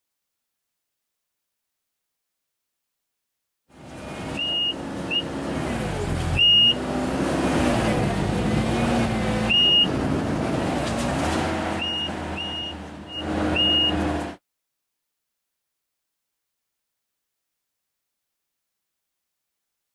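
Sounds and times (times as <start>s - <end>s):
diesel engine under load: 3.7s - 14.4s
short high squeaks: 4.4s - 5.3s, 11.7s - 14.3s.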